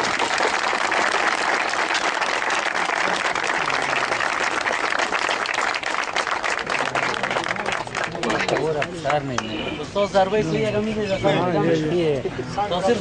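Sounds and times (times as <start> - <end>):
crowd applauding: 0.0 - 9.5.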